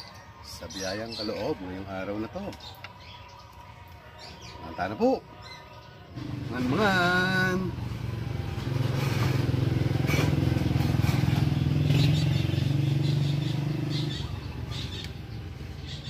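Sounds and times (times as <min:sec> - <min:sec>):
vehicle engine running: 0:06.2 - 0:16.0.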